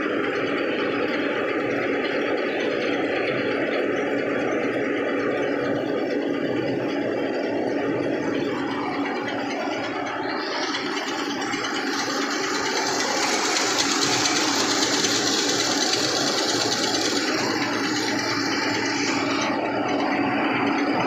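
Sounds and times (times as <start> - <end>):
rice mill machinery running: 0.0 - 21.0
tractor engine: 0.0 - 21.0
rushing hiss: 10.4 - 19.6.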